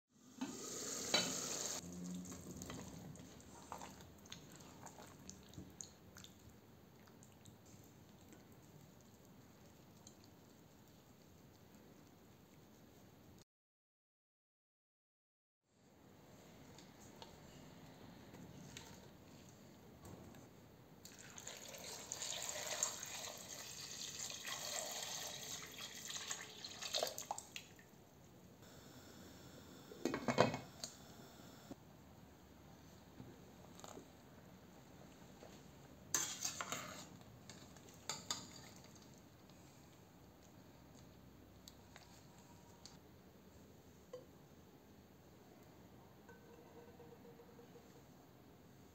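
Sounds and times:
sauce bubbling in a pot: 1.7 - 11.2, 21.1 - 27.6
water pouring into metal pot: 21.1 - 27.5
spatula and spoon scraping: 36.1 - 38.8.

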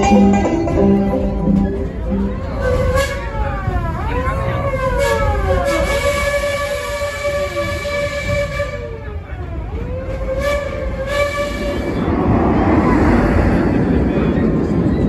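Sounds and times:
wailing siren-like tones: 0.8 - 8.0
steady low rumble: 8.0 - 15.0.

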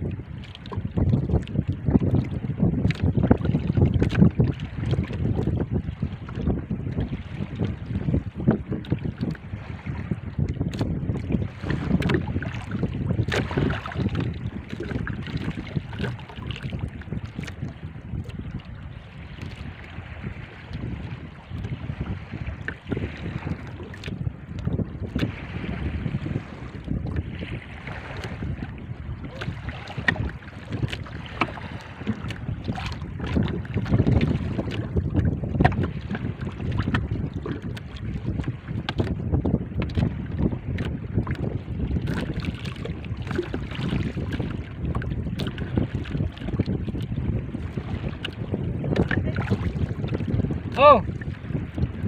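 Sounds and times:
water lapping against boat hull: 0.0 - 52.0
wind buffeting microphone: 0.0 - 52.0
sharp knocks and splashes: 2.1 - 5.5, 8.8 - 18.4, 21.5 - 26.0, 26.8 - 39.2, 39.8 - 46.8, 47.6 - 51.4.

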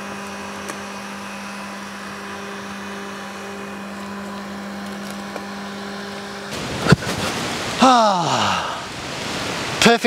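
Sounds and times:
robot mower motor hum: 0.0 - 7.8.

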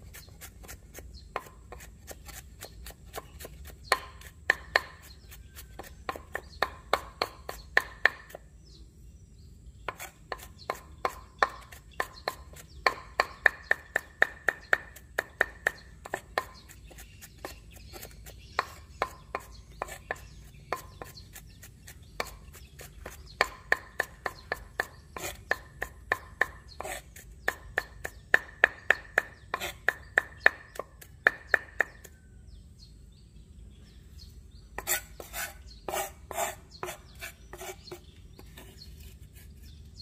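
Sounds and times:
knife chopping on wooden board: 0.0 - 8.4, 9.9 - 32.2.

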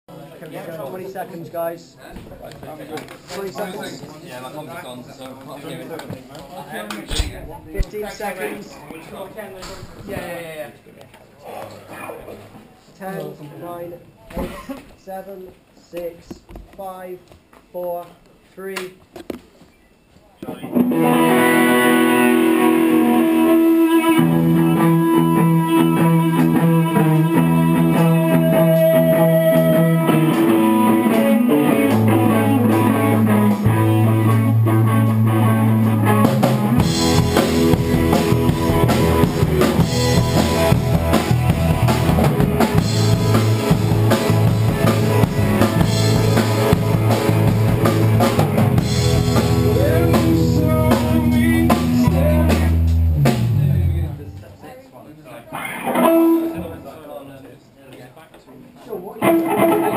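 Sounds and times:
live rock band playing: 20.6 - 54.2, 55.6 - 56.7, 59.2 - 59.9
steady bass line: 24.2 - 54.2.

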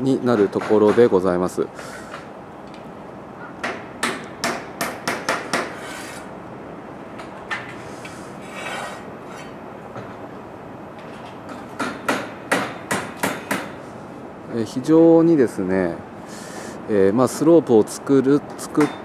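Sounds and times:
short scraping sounds: 5.7 - 6.3, 7.8 - 9.6.

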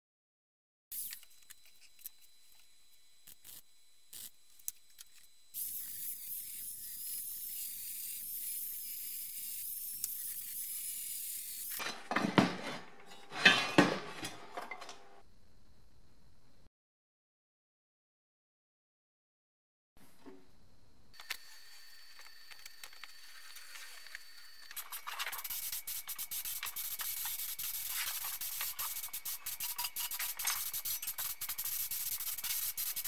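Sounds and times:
wire brush scraping metal: 24.8 - 33.0.

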